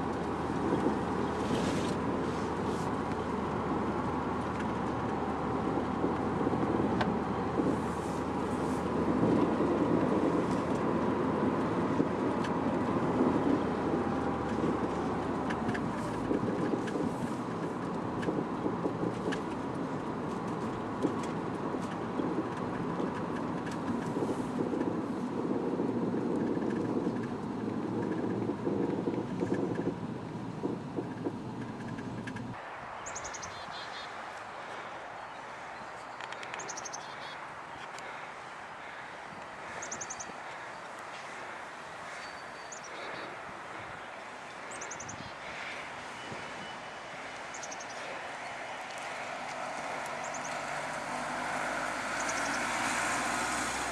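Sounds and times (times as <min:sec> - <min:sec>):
car engine and road noise: 0:00.0 - 0:53.9
birdsong: 0:31.6 - 0:53.9.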